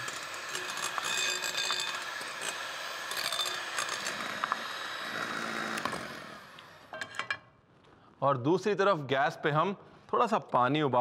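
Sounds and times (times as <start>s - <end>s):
beaters churning: 0.0s - 6.1s
electric hand mixer whining: 0.0s - 7.0s.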